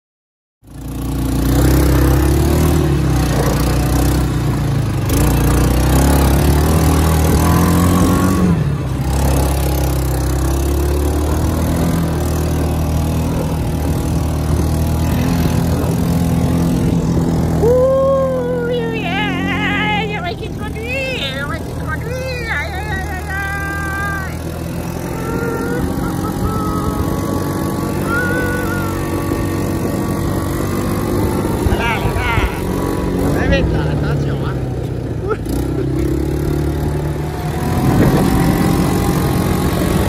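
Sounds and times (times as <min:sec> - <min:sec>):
quad bike engine running: 0:00.6 - 0:40.0.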